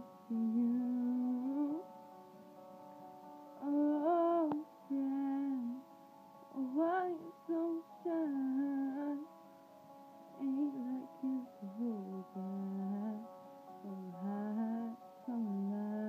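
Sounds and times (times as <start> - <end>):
woman singing: 0.3 - 1.9, 3.6 - 5.8, 6.5 - 9.3, 10.4 - 16.0.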